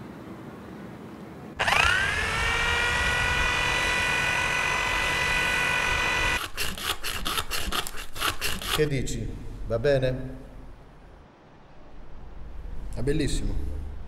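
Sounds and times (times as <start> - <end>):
power tool high whine: 1.6 - 8.8
hand-filing strokes: 1.6 - 8.9.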